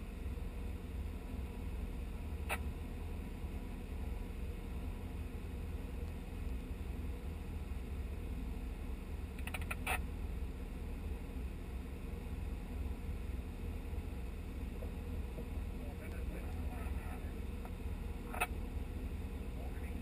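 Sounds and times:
off-road vehicle engine rumble: 0.0s - 20.0s
sharp clicks: 9.4s - 10.0s.

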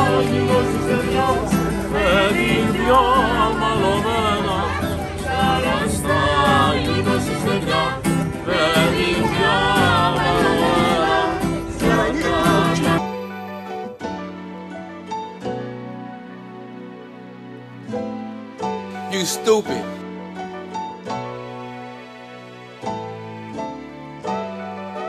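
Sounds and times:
people singing folk music: 0.0s - 13.9s
strummed acoustic guitar: 0.0s - 15.9s
accordion: 0.0s - 20.0s
quiet background music: 0.0s - 25.0s.

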